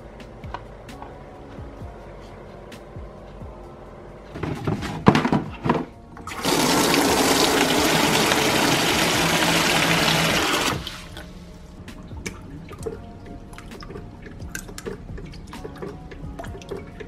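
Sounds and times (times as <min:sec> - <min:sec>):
tap water running into basin: 0:06.3 - 0:11.2.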